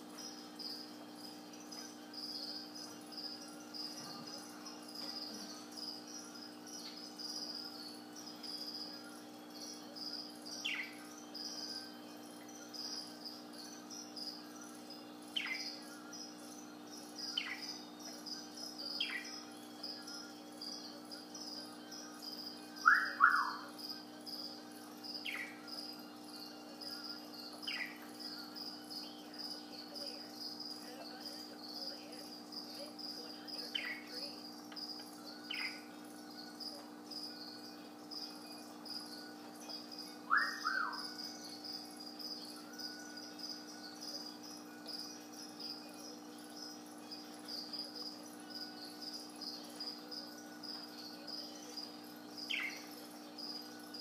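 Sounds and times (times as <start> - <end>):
budgerigar chirps: 22.8 - 23.6.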